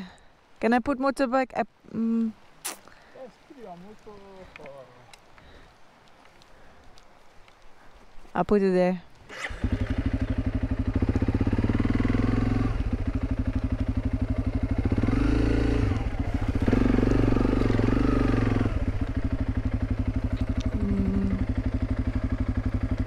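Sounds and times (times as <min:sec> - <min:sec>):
motorcycle engine revving: 0:09.2 - 0:23.0.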